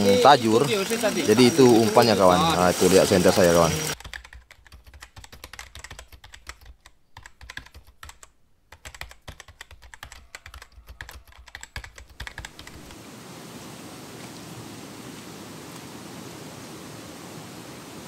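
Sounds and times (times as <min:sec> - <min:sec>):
keyboard typing clicks: 0:03.7 - 0:13.0.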